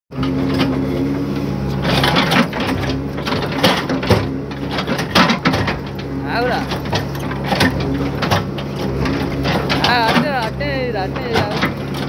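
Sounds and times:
diesel engine running: 0.1s - 12.0s.

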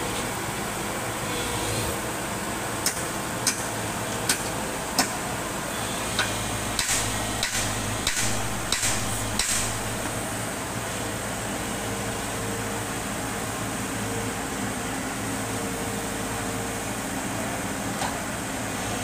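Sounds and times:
excavator diesel engine running: 0.0s - 19.0s
sharp knocks and clanks: 6.2s - 10.1s.

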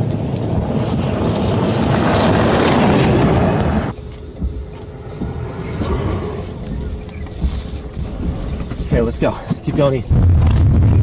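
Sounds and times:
heavy rain: 0.0s - 3.9s
heavy wind: 0.0s - 11.0s
rumbling vehicle noise: 0.0s - 11.0s
faint steady hum: 3.7s - 11.0s.

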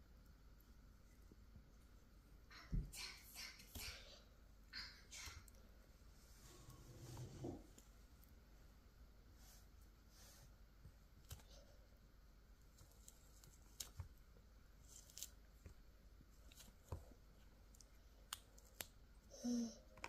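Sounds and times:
orange peel tearing: 14.8s - 15.5s.

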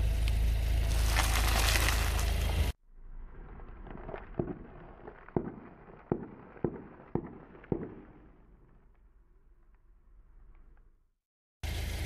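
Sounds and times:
low hum: 0.0s - 12.0s
crackling crunch: 0.3s - 9.1s
chip bags popping under tyre: 0.9s - 2.7s, 3.9s - 8.3s.

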